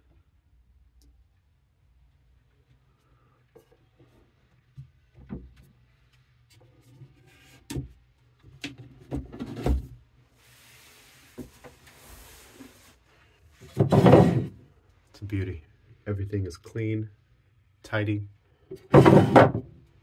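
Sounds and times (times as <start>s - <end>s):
soft rustling hiss: 10.2s - 13.7s
wooden cabinet doors knocking: 13.7s - 14.5s, 18.9s - 19.7s
thump: 18.9s - 19.7s.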